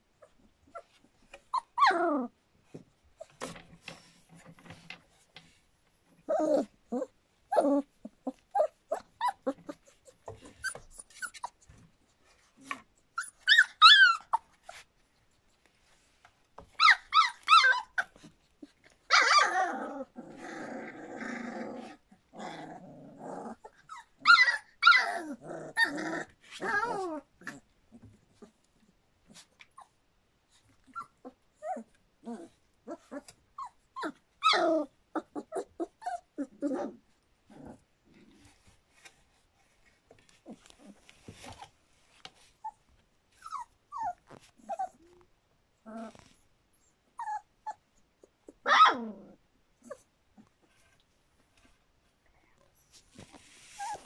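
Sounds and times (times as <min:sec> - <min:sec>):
puppies whimpering and yipping: 0:00.7 - 0:02.3, 0:06.2 - 0:11.8, 0:13.1 - 0:14.8, 0:16.7 - 0:20.2, 0:23.5 - 0:27.6, 0:30.8 - 0:36.9, 0:42.6 - 0:45.2, 0:47.2 - 0:49.1.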